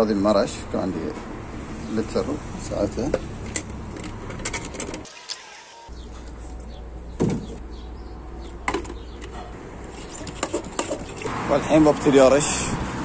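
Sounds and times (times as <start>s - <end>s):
dull thump: 7.2s - 7.6s.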